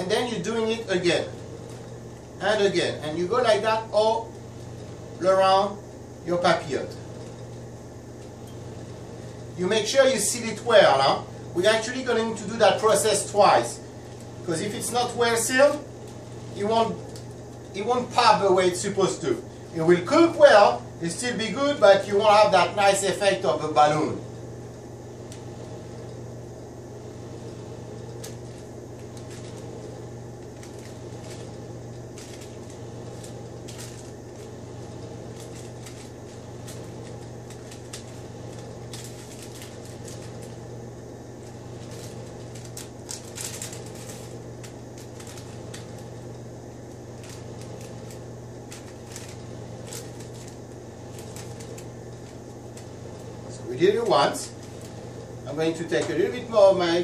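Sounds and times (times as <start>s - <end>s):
parchment paper crinkling: 0.0s - 2.7s, 11.6s - 20.4s, 27.9s - 56.6s
steady low hum: 0.0s - 57.0s.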